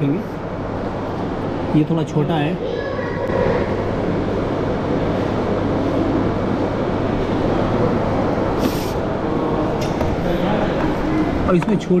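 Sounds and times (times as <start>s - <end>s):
machinery humming: 0.0s - 12.0s.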